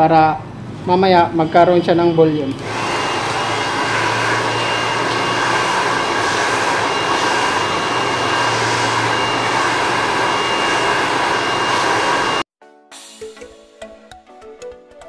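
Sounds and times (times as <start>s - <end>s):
hair dryer running: 2.5s - 12.5s.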